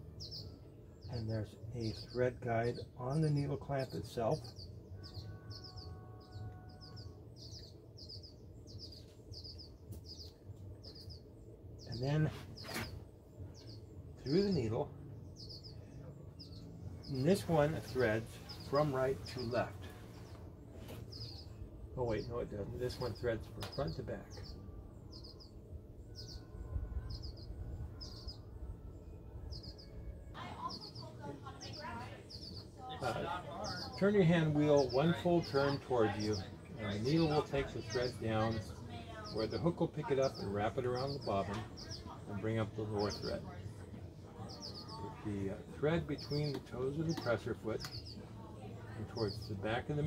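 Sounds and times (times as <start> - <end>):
faint low rumble: 0.0 - 35.2
low steady hum: 0.0 - 50.0
small bird chirping: 0.0 - 50.0.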